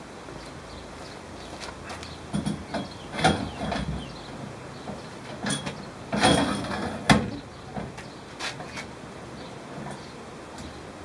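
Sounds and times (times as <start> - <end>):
steel tubes knocking and scraping: 2.3 - 8.9.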